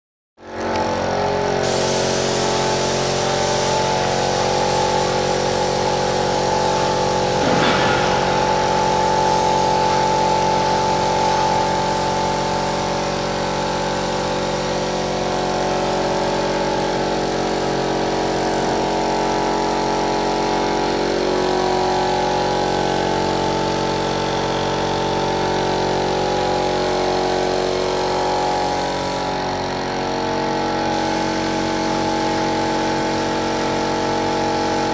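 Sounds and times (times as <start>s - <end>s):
air compressor running: 0.5s - 34.9s
paint spray gun hissing: 1.6s - 10.4s, 30.9s - 34.9s.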